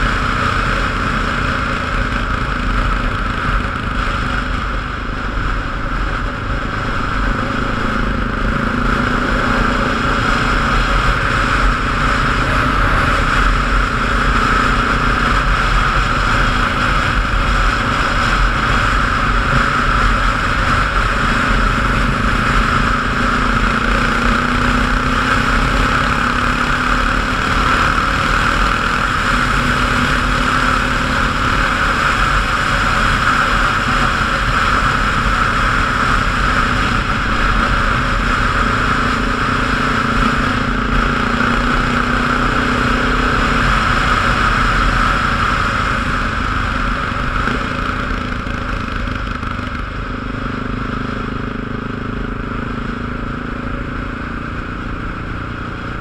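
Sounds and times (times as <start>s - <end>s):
loud rushing noise: 0.0s - 56.0s
vehicle engine running: 0.0s - 56.0s.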